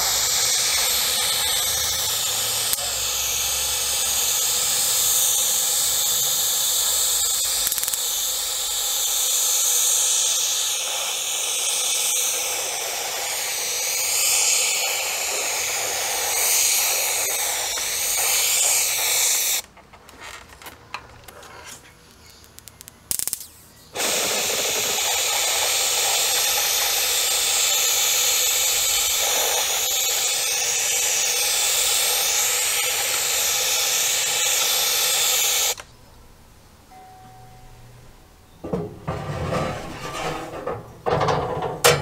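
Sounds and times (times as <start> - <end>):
spray gun hissing: 0.0 - 19.6, 23.9 - 35.8
small clicks: 22.0 - 23.5.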